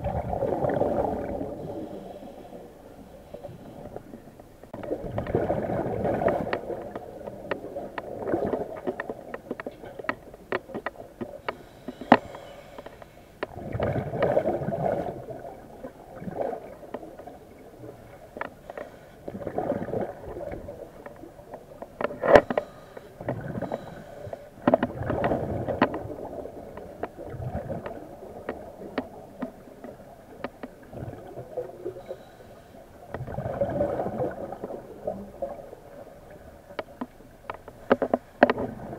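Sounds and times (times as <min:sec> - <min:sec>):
gurgling rumbling noise: 0:00.0 - 0:02.2, 0:04.7 - 0:08.9, 0:13.5 - 0:16.8, 0:33.2 - 0:35.6
diver breathing underwater: 0:01.0 - 0:04.0, 0:11.5 - 0:13.4, 0:22.4 - 0:24.6.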